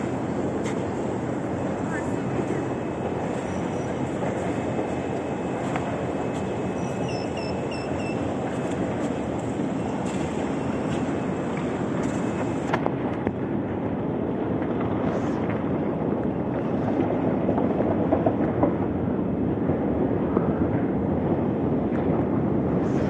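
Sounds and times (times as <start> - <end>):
escalators running: 0.0 - 12.7
metro station hall rumble: 0.0 - 12.7
turnstile card reader beeps: 6.8 - 8.3.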